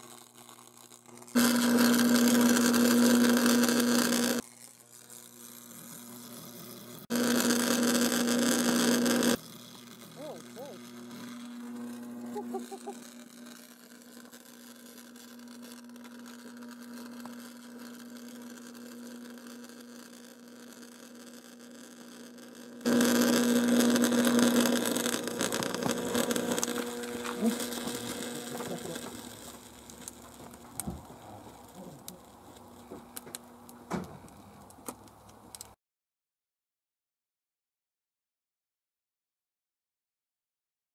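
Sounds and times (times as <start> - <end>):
electric arc buzzing and crackling: 0.0 - 35.8
steady hum: 1.3 - 4.4, 6.9 - 33.7.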